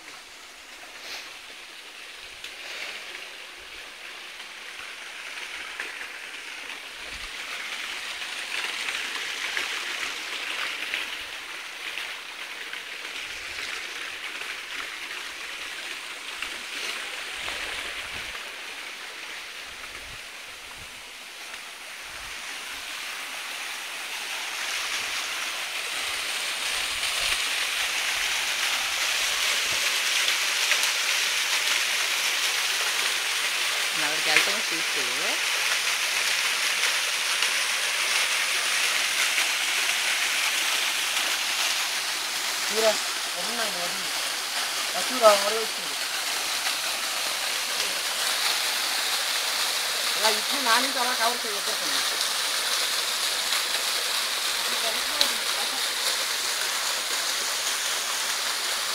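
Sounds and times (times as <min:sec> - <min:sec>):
waterfall rushing: 0:00.0 - 0:58.9.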